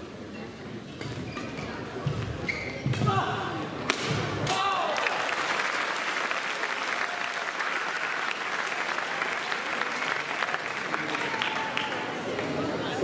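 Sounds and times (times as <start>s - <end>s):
spectators applauding: 4.8s - 12.6s.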